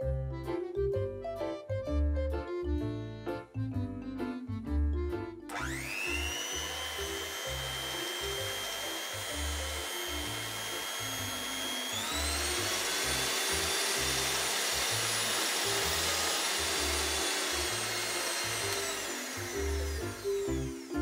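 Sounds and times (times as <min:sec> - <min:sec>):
background music: 0:00.0 - 0:21.0
toy hand mixer motor whining: 0:05.5 - 0:21.0.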